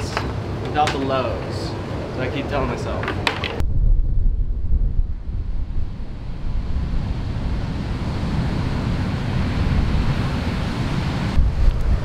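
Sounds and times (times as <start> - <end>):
wind buffeting microphone: 0.0 - 12.0
ocean surf: 5.6 - 12.0.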